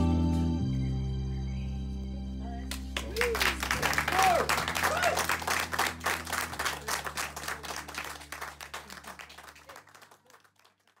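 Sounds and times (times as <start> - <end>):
small audience applauding: 2.7 - 11.0.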